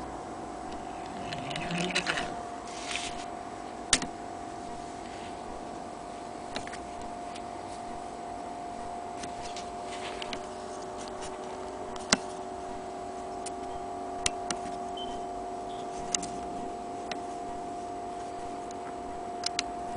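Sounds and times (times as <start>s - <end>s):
steady hum: 0.0s - 19.9s.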